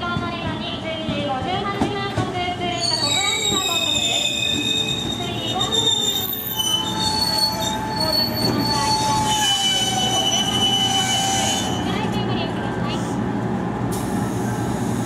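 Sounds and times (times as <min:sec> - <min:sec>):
rumble of train cars: 0:00.0 - 0:15.0
train brakes squealing: 0:02.7 - 0:12.0.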